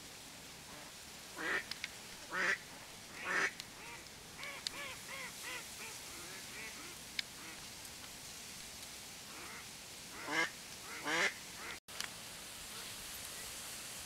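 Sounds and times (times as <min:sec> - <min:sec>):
duck quacking: 0:02.3 - 0:02.6, 0:03.2 - 0:07.6, 0:10.2 - 0:11.8.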